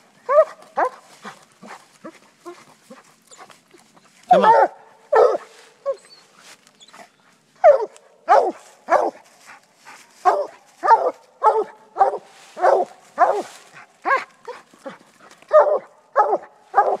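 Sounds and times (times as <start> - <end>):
dog barking: 0.3 - 1.8, 4.3 - 5.5, 7.6 - 9.2, 10.2 - 14.7, 15.5 - 17.0.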